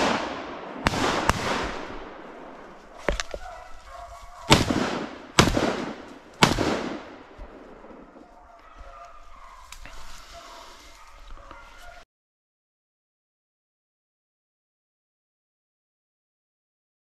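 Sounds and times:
shotgun shots echoing: 0.0 - 3.6, 4.4 - 8.1.

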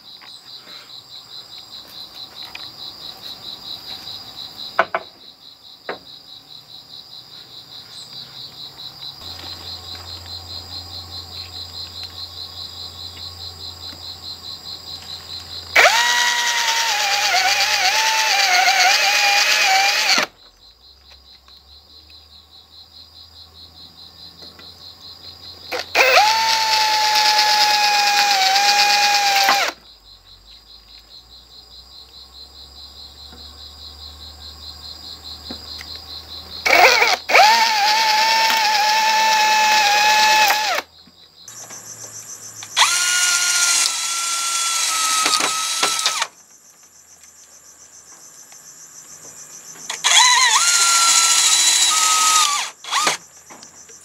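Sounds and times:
pulsing insect chorus: 0.0 - 54.0
sharp knocks: 4.8 - 5.2
cordless drill whining into bamboo: 15.7 - 20.3, 25.7 - 29.8, 36.6 - 40.9, 42.6 - 46.3, 49.9 - 53.2.

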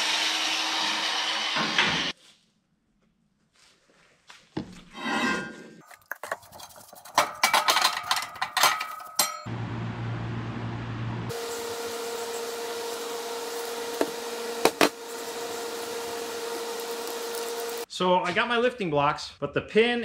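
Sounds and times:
clattering clicks and knocks: 6.0 - 9.5.

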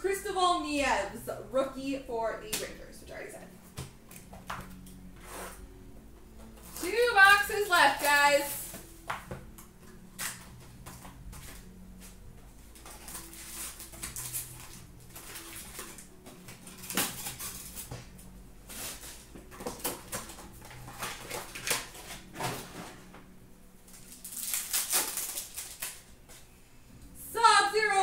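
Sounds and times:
cardboard and cards rustling: 6.3 - 23.2
wrapper crinkling: 12.7 - 23.0, 23.9 - 26.2.

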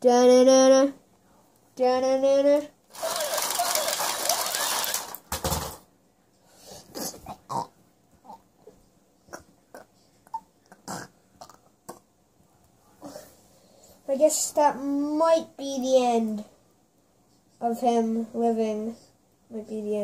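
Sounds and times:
plastic toy figures clicking: 2.9 - 5.8.

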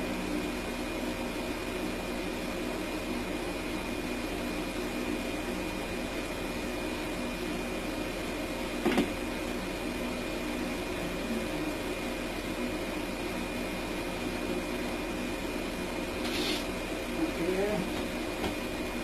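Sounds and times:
mechanical hum with high whine: 0.0 - 19.0.

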